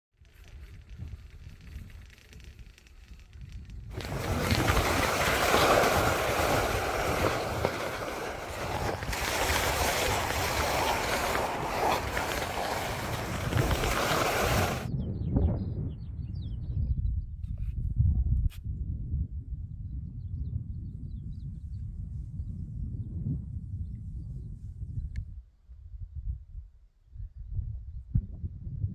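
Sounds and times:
skis scraping over snow: 0.2s - 14.9s
wind on microphone: 0.2s - 28.9s.

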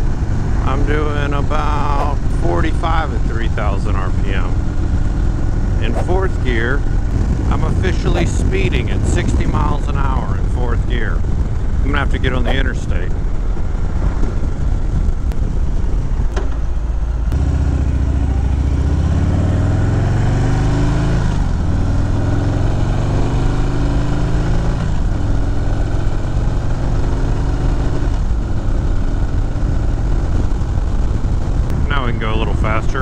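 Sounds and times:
wind rush: 0.0s - 17.3s, 28.1s - 33.0s
motorcycle engine accelerating: 0.0s - 33.0s.

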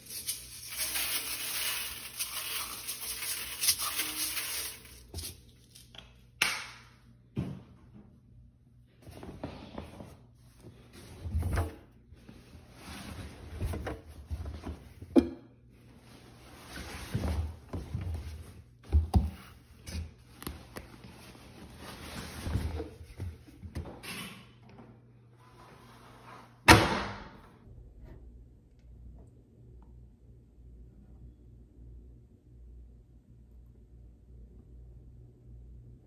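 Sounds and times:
washer door slammed shut: 26.7s - 27.4s.

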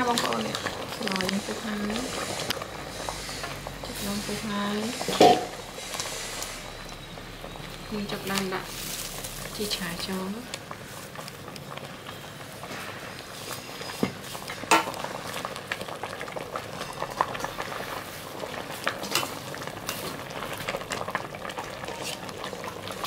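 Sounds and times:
utensil scraping a pan: 0.0s - 6.7s, 21.9s - 22.3s
food sizzling in a pan: 0.0s - 23.0s.

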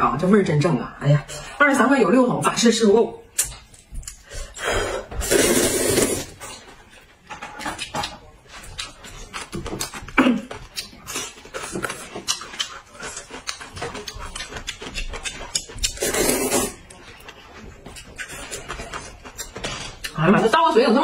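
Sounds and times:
wet chewing and mouth clicks: 3.3s - 4.5s, 7.6s - 20.2s
slurping noodles: 5.0s - 6.6s, 15.6s - 17.0s.

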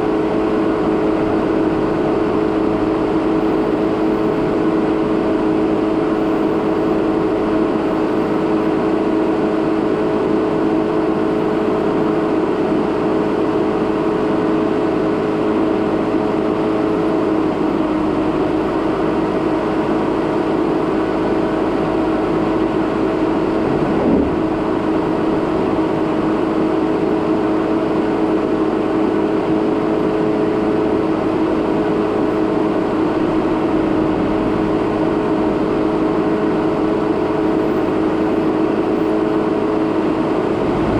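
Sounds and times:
car engine and tyre noise: 0.0s - 40.9s
car bump: 23.5s - 25.8s.

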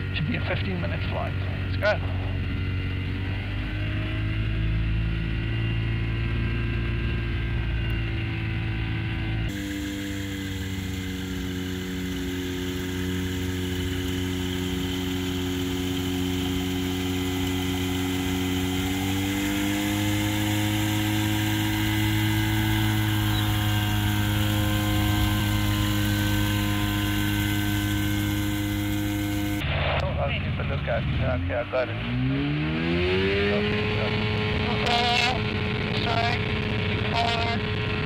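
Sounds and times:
light aircraft engine running: 0.0s - 38.0s.

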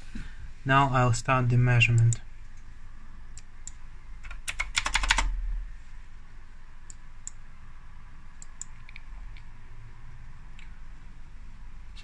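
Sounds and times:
computer keyboard clicking: 3.6s - 5.3s.

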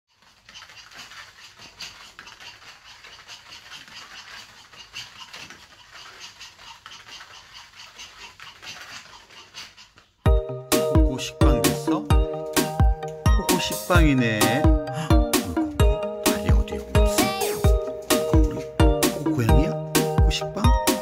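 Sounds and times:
dog paws pattering on foam mat: 0.1s - 10.3s.

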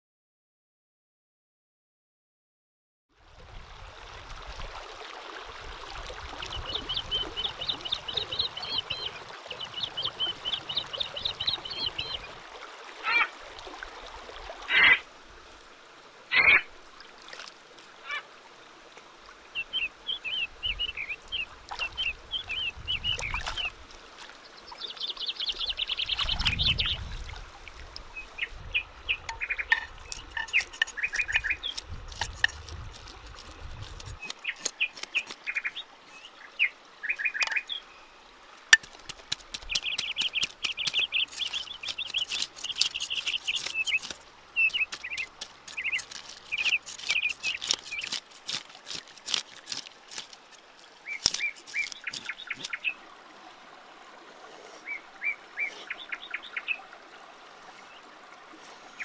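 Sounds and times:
knife scraping fish scales: 29.6s - 35.5s, 38.8s - 52.7s.

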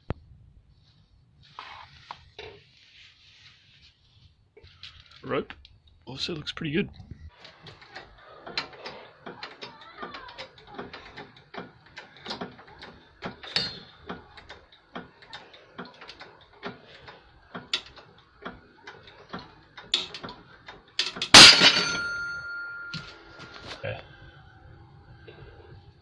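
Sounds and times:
ringing tones: 21.3s - 23.4s.

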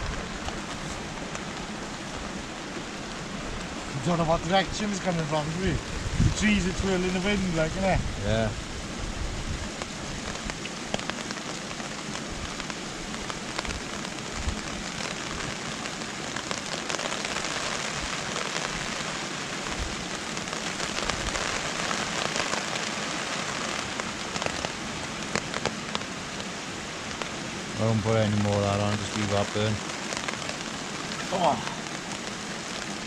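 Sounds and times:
wind and rain rushing: 0.0s - 33.0s
wind thumps on microphone: 5.8s - 6.9s, 7.6s - 11.2s, 12.3s - 14.7s
sharp ticks and crackles: 9.7s - 19.0s.

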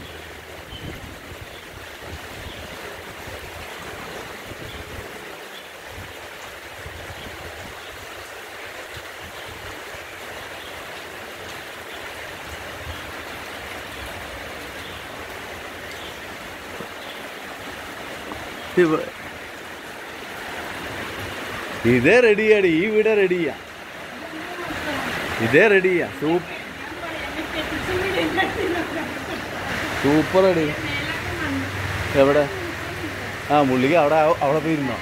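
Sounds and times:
wind buffeting microphone: 0.0s - 7.9s
rain falling on leaves: 0.0s - 35.0s.

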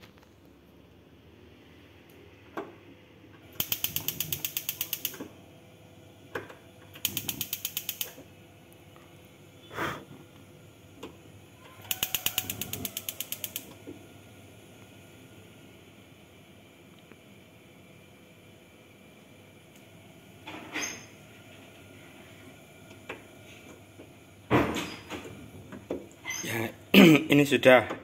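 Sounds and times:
gas igniter clicks: 3.5s - 5.3s, 7.0s - 8.2s, 11.9s - 13.8s.

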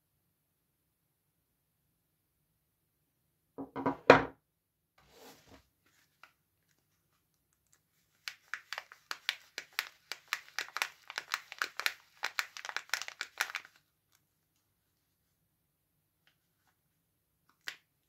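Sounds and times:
soap bar knocking on wooden table: 3.6s - 4.4s
plastic wrapper crinkling: 7.6s - 14.2s.

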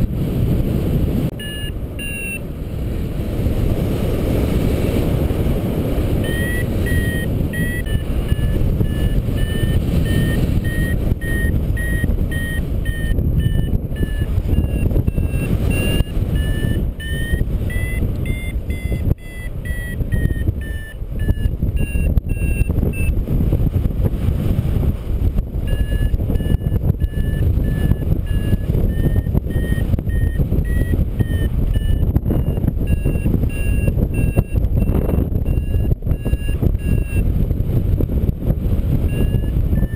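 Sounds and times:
wind rumble on microphone: 0.0s - 39.9s
variometer short beeps: 1.3s - 2.5s, 6.0s - 23.2s, 25.6s - 37.4s, 38.8s - 39.9s.

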